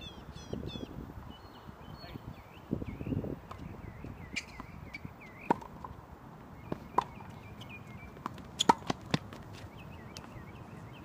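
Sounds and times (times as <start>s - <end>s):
tennis ball hits and bounces: 4.4s - 6.0s, 6.6s - 9.6s.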